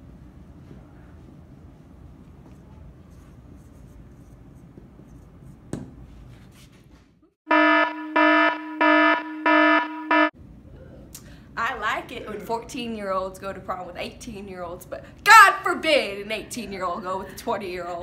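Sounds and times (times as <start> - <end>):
low room hum: 0.0 - 7.3, 10.3 - 18.0
harsh electronic alarm beeping: 7.5 - 10.3.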